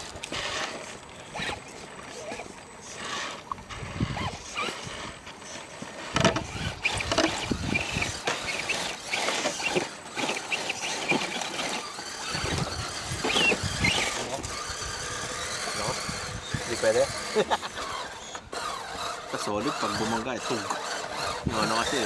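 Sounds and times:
short squeaks: 0.0 - 17.0.

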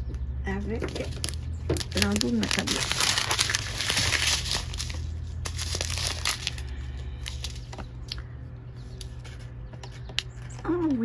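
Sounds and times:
plastic bags crinkling: 0.8 - 8.2.

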